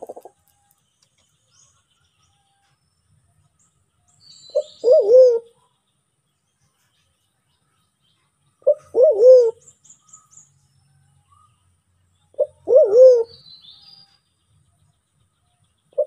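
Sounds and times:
dove cooing: 0:00.0 - 0:00.4, 0:04.5 - 0:05.6, 0:08.6 - 0:09.6, 0:12.4 - 0:13.4
small birds chirping: 0:00.0 - 0:16.0.

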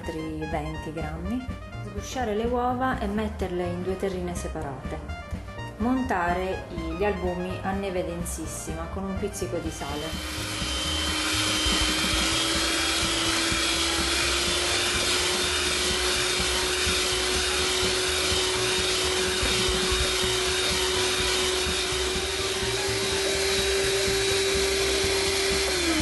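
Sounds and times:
electric hand mixer running: 0:09.3 - 0:26.0.

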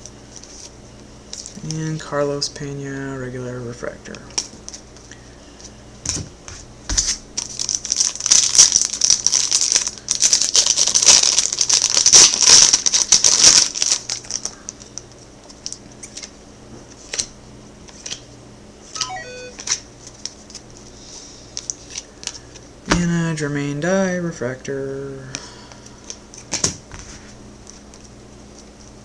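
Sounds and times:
foil wrapper crinkling: 0:07.0 - 0:16.3.

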